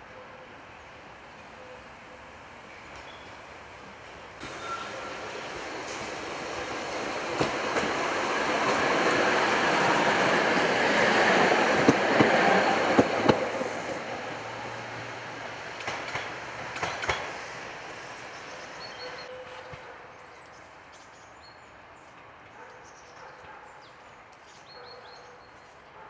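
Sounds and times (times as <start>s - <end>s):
tram passing: 0.0s - 26.0s
wheels clacking over rail joints: 4.4s - 13.8s, 15.7s - 17.5s.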